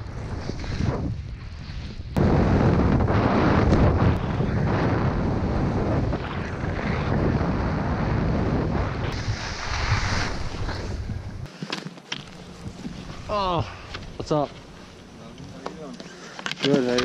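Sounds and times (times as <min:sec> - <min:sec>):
wind buffeting microphone: 0:00.0 - 0:11.5
skis hissing over snow: 0:09.1 - 0:14.4.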